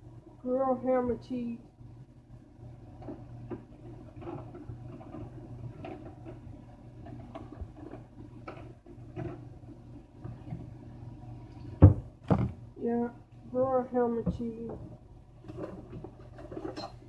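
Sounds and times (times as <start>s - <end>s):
steady low hum: 0.0s - 17.0s
handling rustles and taps: 3.0s - 10.7s, 14.2s - 17.0s.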